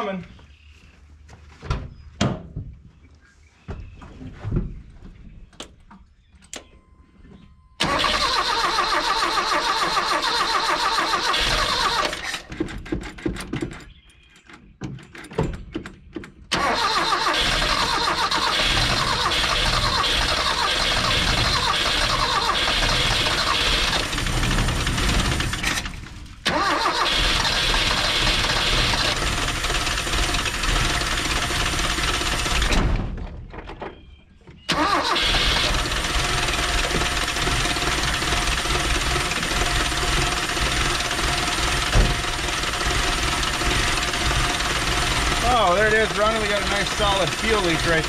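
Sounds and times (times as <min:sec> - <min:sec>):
engine cranking: 0:07.8 - 0:14.0, 0:16.5 - 0:32.9, 0:34.7 - 0:48.0.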